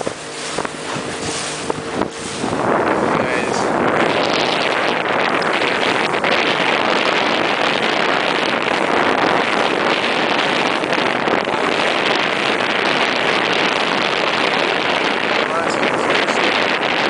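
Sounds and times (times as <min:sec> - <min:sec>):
boat motor: 0:00.0 - 0:17.0
wind and water rushing: 0:00.0 - 0:17.0.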